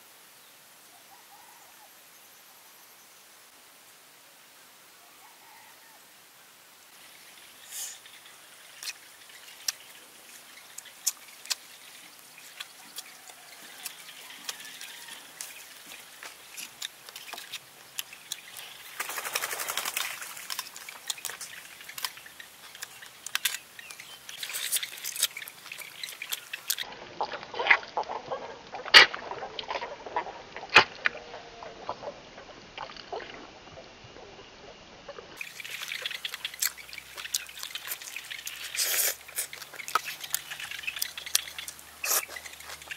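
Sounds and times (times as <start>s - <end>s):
man chewing and lip-smacking: 8.7s - 18.8s, 20.4s - 32.2s, 35.1s - 42.9s.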